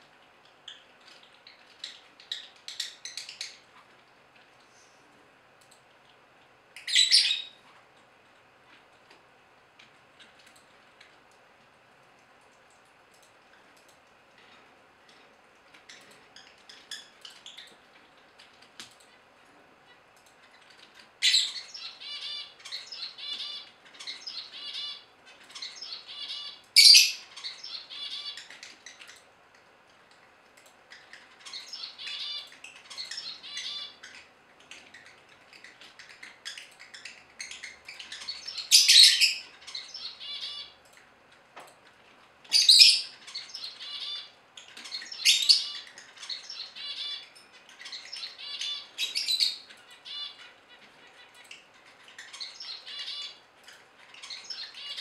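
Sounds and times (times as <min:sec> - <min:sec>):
birds chirping rapidly: 0:00.4 - 0:03.9, 0:06.7 - 0:07.6, 0:19.0 - 0:29.3, 0:30.8 - 0:41.2, 0:42.3 - 0:55.0
shrill bird calls: 0:06.8 - 0:07.6, 0:21.2 - 0:28.5, 0:31.4 - 0:34.1, 0:42.5 - 0:50.5, 0:52.3 - 0:53.4.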